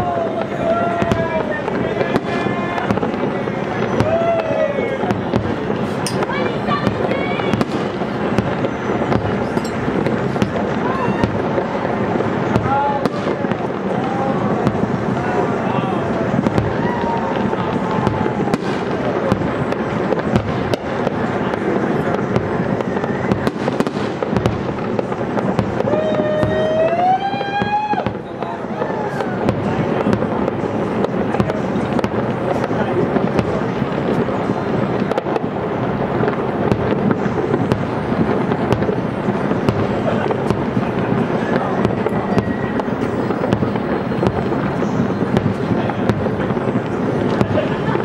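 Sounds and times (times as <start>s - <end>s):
firework shells bursting: 0.0s - 48.0s.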